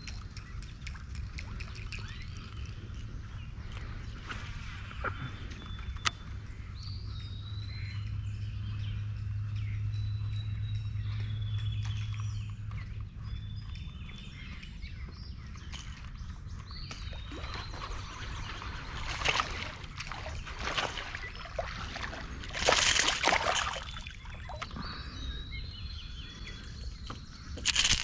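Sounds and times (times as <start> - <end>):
water sloshing and trickling: 16.9 - 25.2, 26.6 - 28.0
water splashes: 17.1 - 24.8.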